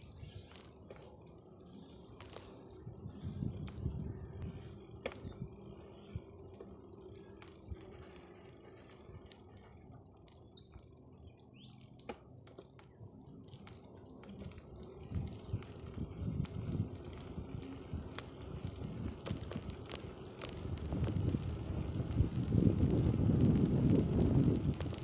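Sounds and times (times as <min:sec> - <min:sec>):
bicycle tyres rumbling on concrete: 0:00.0 - 0:25.0
bike clicks and rattles: 0:00.0 - 0:25.0.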